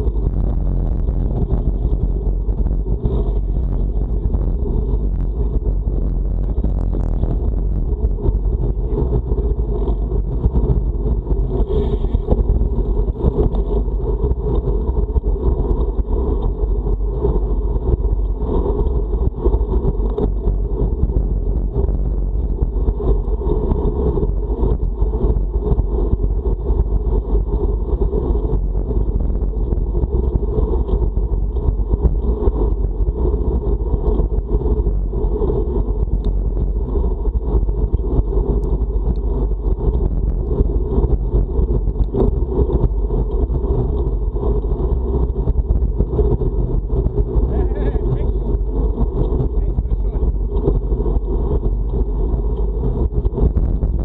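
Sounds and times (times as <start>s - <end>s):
wind buffeting microphone: 0.0s - 54.0s.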